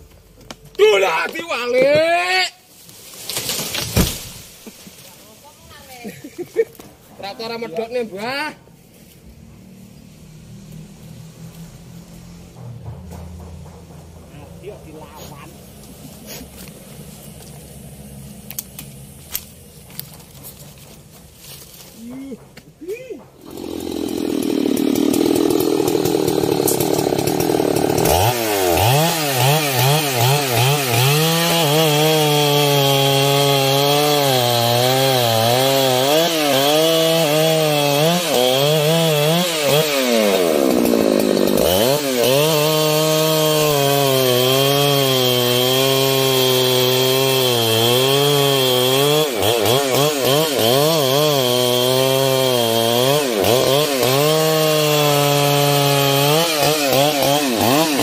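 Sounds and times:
chainsaw cutting wood: 0:02.9 - 0:05.0, 0:23.4 - 0:58.0.

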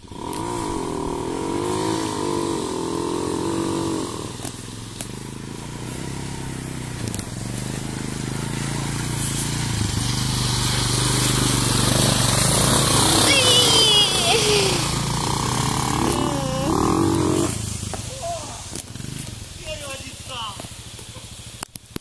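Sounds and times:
quad engine passing by: 0:00.0 - 0:21.6
atv engines running: 0:00.0 - 0:22.0.

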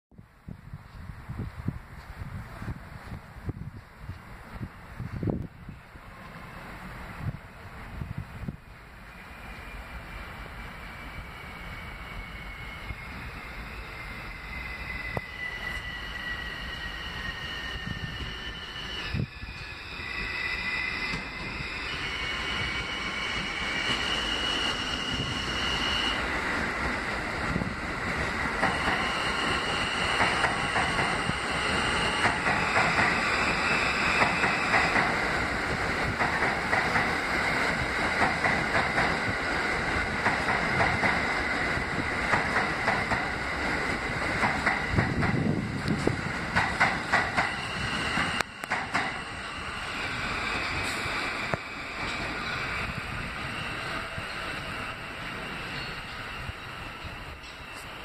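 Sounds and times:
high steady train tones: 0:00.1 - 0:58.0
train wheels clicking over rail joints: 0:21.0 - 0:25.8, 0:26.5 - 0:49.4, 0:50.0 - 0:53.1.

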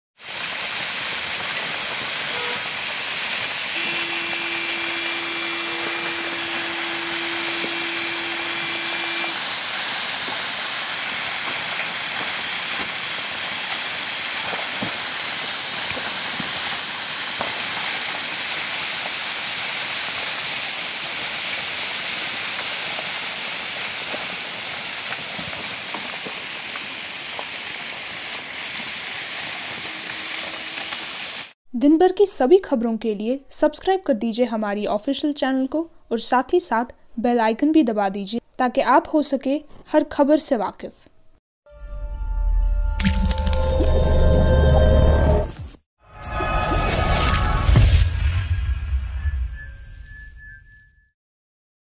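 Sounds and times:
water running down rocks: 0:00.2 - 0:31.5, 0:43.0 - 0:44.2
heavy rain hissing: 0:00.2 - 0:31.6
steady tone: 0:03.8 - 0:09.5.

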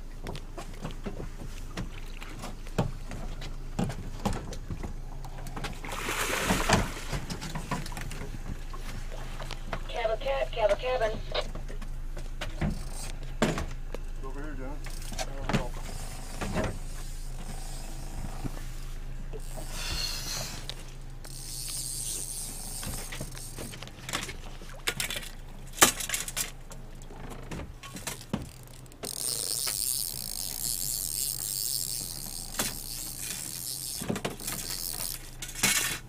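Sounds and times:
low steady hum: 0:00.0 - 0:36.0
high-pitched reel buzzing: 0:12.7 - 0:13.1, 0:15.8 - 0:24.2, 0:28.5 - 0:35.9
fishing reel clicking: 0:12.8 - 0:13.1, 0:19.4 - 0:24.2, 0:28.1 - 0:36.0.

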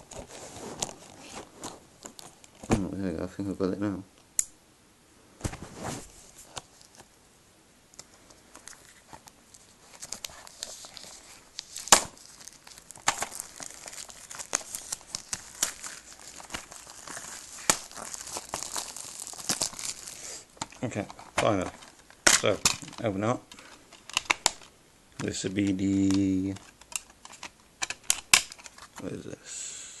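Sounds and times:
plastic wrap crinkling and tearing: 0:08.6 - 0:29.0.

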